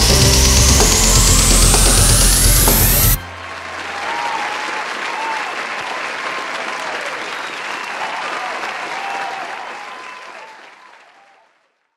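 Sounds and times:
crowd clapping: 3.2s - 11.8s.

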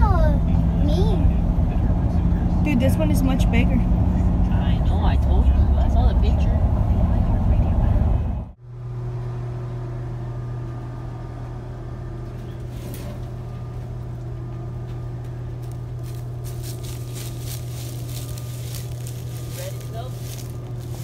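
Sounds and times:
truck engine idling: 0.0s - 21.0s
footsteps on dry leaves: 15.4s - 21.0s.

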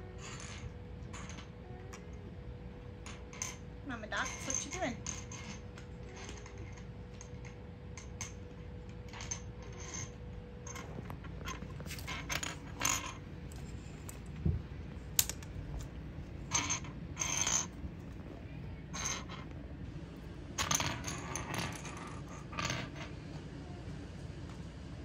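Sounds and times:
cats scrambling on tile floor: 10.7s - 19.7s.

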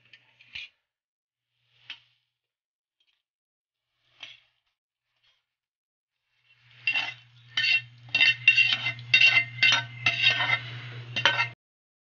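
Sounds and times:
metal utensil scraping a pan: 3.8s - 5.6s, 6.2s - 11.6s.

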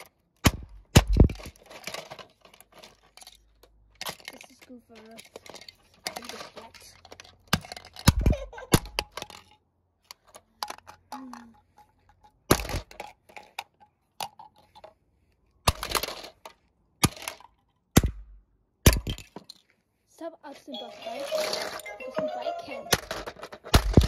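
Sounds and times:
hammer striking plastic toy: 22.9s - 24.0s.

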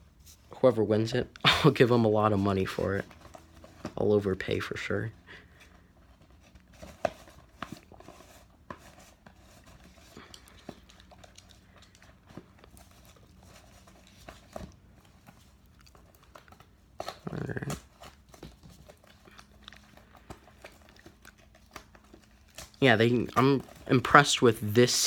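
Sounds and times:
cardboard packaging being opened: 1.7s - 25.0s.

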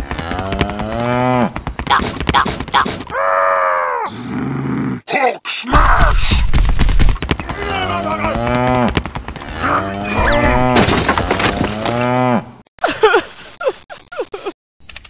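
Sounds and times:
cow mooing: 7.7s - 10.7s.

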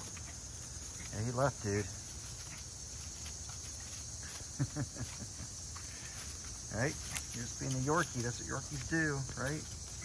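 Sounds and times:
insects chorus: 0.0s - 10.0s.

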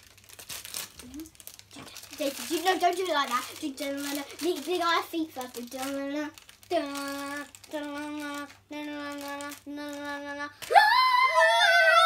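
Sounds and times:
child squealing: 10.6s - 12.0s.

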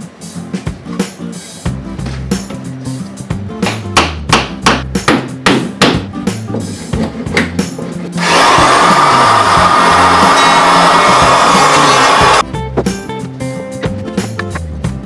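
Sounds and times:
background music: 0.0s - 15.0s
power tool running: 8.2s - 12.4s.

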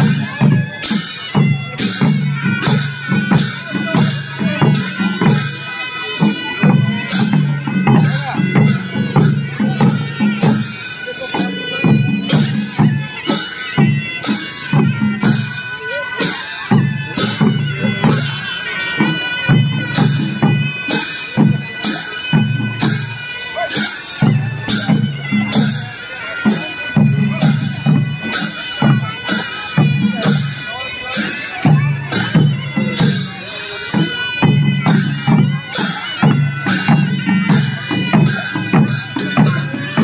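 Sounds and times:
barrel drums beating: 0.0s - 25.8s
hand cymbals clashing: 0.0s - 40.0s.

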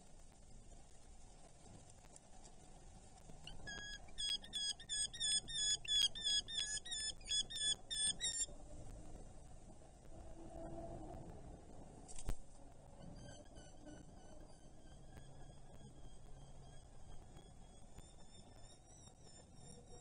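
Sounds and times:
bird calling sharp repeated notes: 3.5s - 8.5s.

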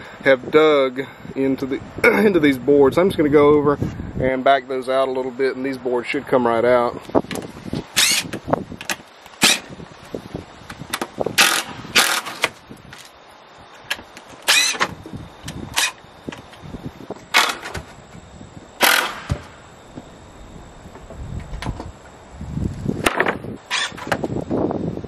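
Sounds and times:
cordless drill backing out screws: 13.9s - 15.0s, 18.8s - 19.5s.

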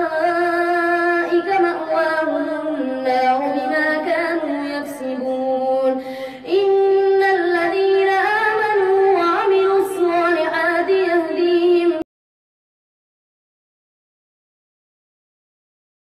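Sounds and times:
boy chanting melodically: 0.0s - 12.0s.

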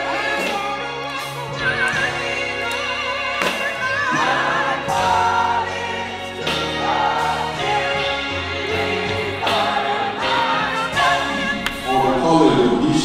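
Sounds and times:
choir singing: 0.0s - 13.0s.

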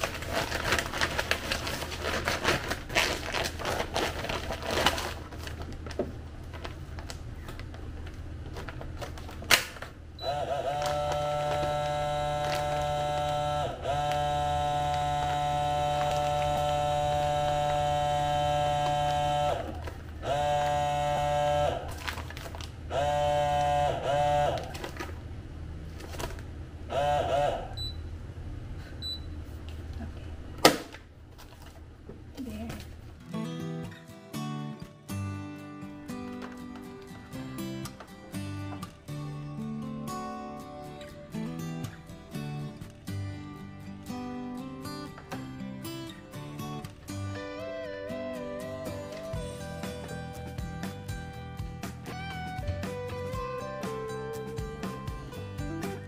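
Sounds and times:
plastic bag crinkling: 0.0s - 10.0s, 10.6s - 22.8s
vacuum sealer pump humming: 0.0s - 33.2s.

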